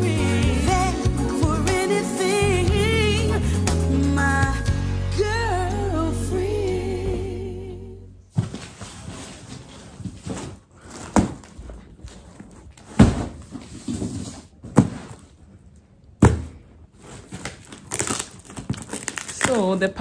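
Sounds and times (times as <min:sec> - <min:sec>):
rustling: 0:08.3 - 0:19.9.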